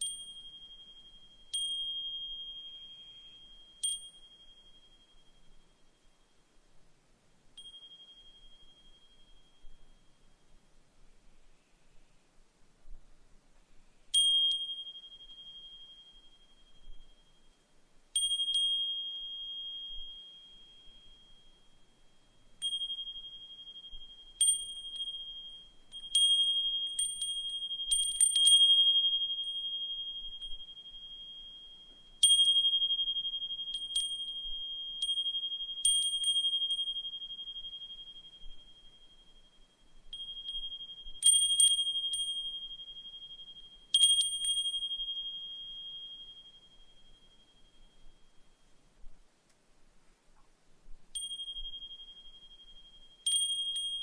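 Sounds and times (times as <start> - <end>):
wind chime ringing: 0.0 - 5.7, 22.6 - 48.7, 51.1 - 54.0.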